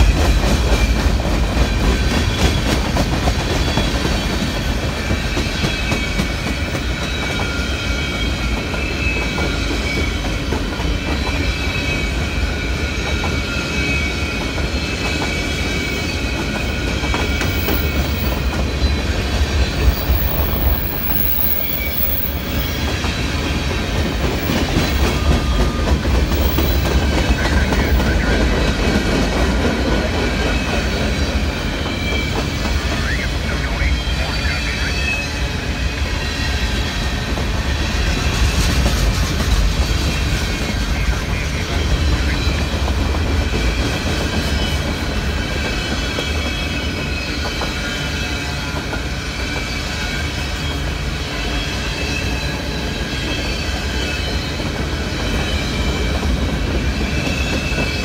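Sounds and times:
freight train rumbling: 0.0s - 58.0s
wheels squealing: 5.3s - 28.5s.

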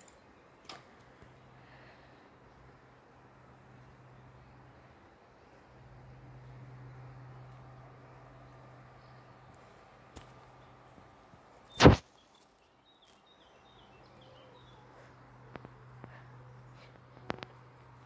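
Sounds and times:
faint bird chirps: 11.6s - 17.6s
loud thump: 11.8s - 12.0s.

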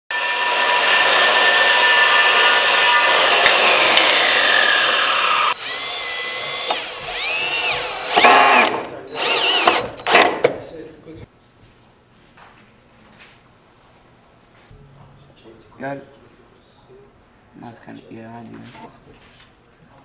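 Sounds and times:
circular saw cutting wood: 0.1s - 10.4s
cordless drill whirring: 0.2s - 10.4s.

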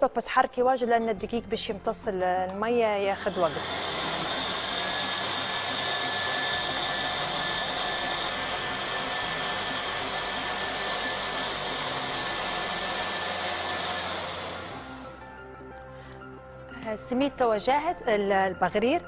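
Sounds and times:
blender running: 3.1s - 15.3s.

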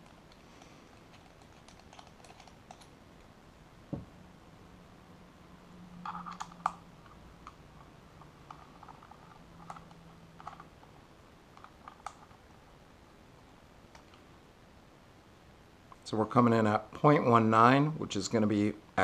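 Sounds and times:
small metallic clicks and scrapes: 0.0s - 3.0s, 6.0s - 10.7s, 11.6s - 12.4s.

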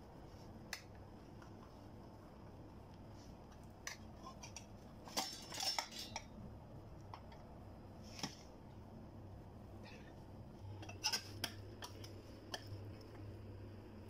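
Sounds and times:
utensils scraping metal tray: 4.2s - 6.3s.

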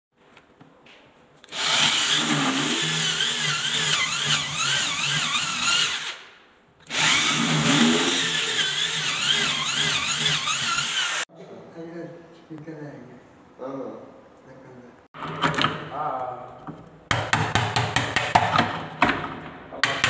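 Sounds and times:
electric drill boring into wood: 1.5s - 6.2s, 6.9s - 11.3s.

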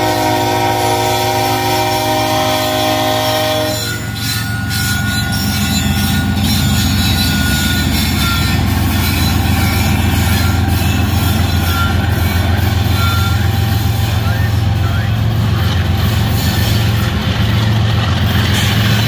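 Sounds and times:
diesel locomotive engines rumbling: 0.0s - 19.0s
faint wheel squeals: 3.7s - 13.9s.

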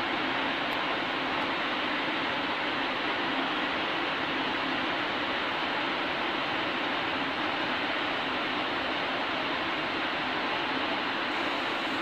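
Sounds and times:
train cooling fans humming: 0.0s - 12.0s.

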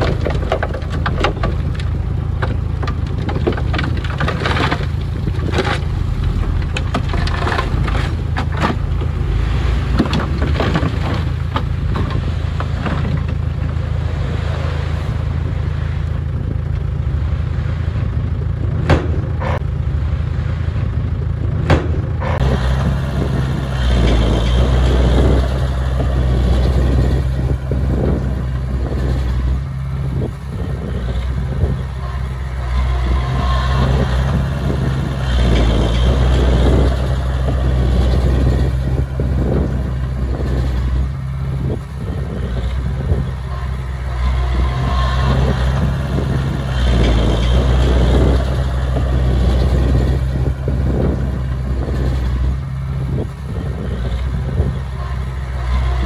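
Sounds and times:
diesel engines droning: 0.0s - 56.0s
sharp knocks: 21.6s - 22.1s.

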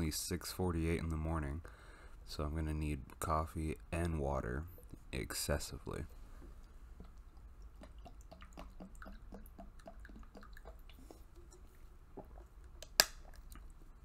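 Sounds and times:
person gulping water: 6.5s - 14.0s.

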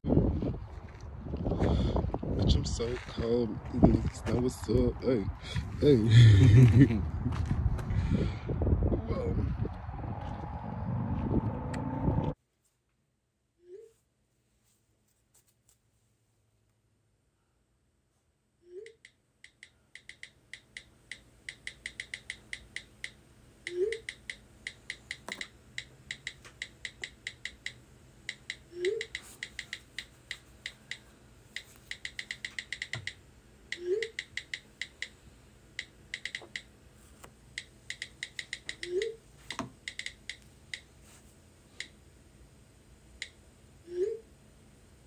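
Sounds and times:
short rising tone: 9.4s - 12.4s
touchscreen keyboard clicks: 19.5s - 31.0s, 31.6s - 35.2s, 35.8s - 36.7s, 37.6s - 40.9s.

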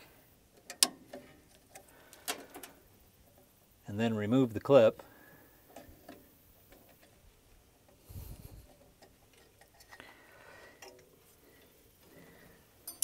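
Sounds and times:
clip clicks and handling knocks: 0.6s - 2.8s.

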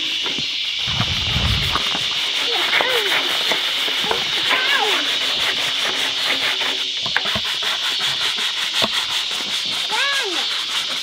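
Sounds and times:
sponge scrubbing plastic tub: 0.8s - 11.0s.

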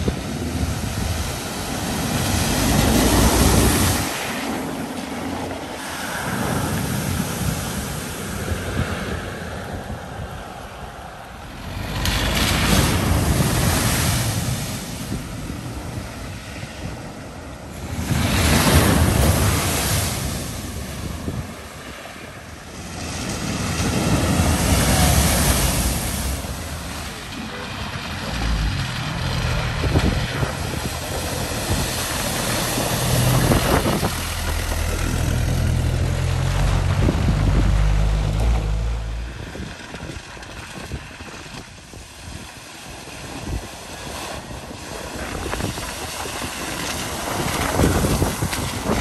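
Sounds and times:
car tyres splashing water: 0.0s - 49.0s
floodwater rushing: 0.0s - 49.0s
vehicle engine running: 26.3s - 40.0s.

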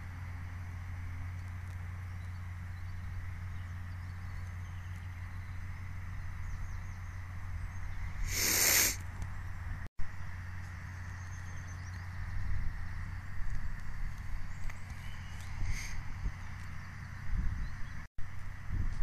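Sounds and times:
distant tractor engine drone: 0.0s - 19.0s
short loud hiss: 8.2s - 9.0s
faint airy hiss: 8.2s - 9.1s.

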